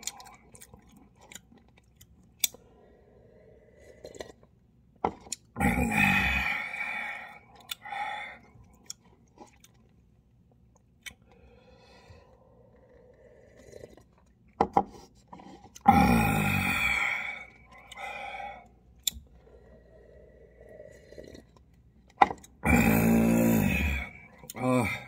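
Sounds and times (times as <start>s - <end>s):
man sipping and swallowing: 3.7s - 10.0s, 20.6s - 25.0s.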